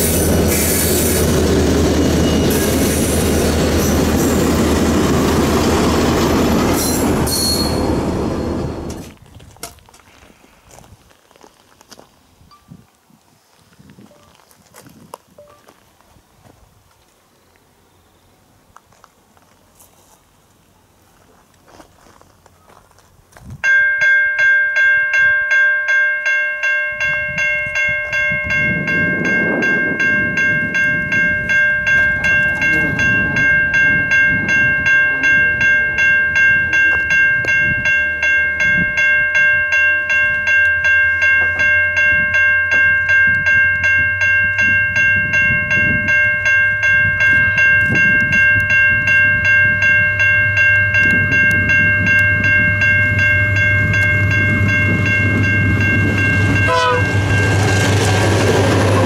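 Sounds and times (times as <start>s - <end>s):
diesel locomotive engine rumble: 0.0s - 9.2s, 27.0s - 59.0s.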